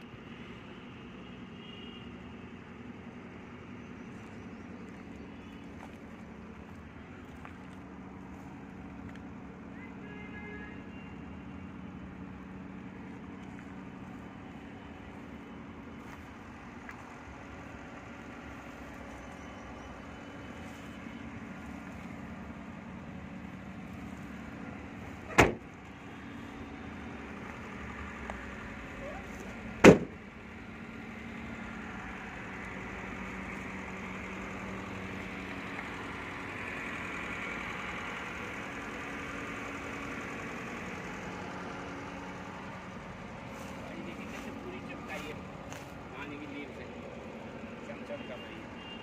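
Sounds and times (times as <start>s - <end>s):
sharp thump: 25.3s - 25.6s, 29.8s - 30.2s.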